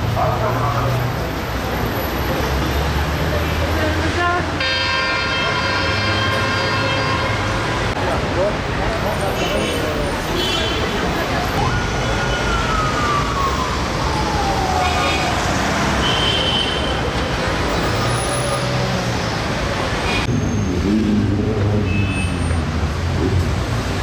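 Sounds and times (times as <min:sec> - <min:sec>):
siren sliding down in pitch: 0:11.6 - 0:15.4.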